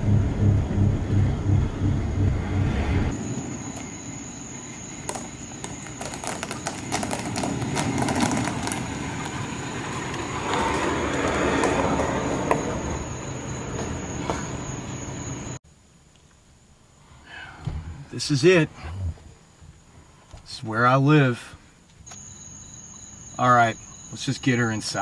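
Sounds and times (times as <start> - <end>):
engine and road drone inside cab: 0.0 - 5.7, 7.3 - 15.6
truck approaching: 0.0 - 15.6
crackles: 3.1 - 12.0.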